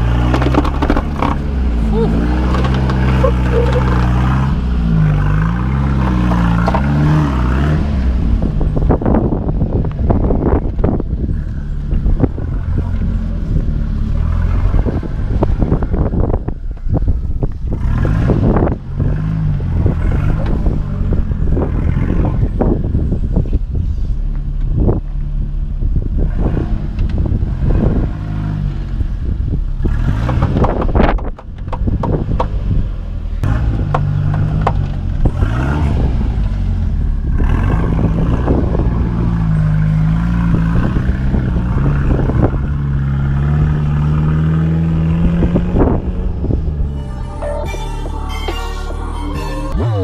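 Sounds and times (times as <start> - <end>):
vehicle engine under load: 0.0 - 50.0
tyres and suspension knocking on rock: 30.2 - 32.6.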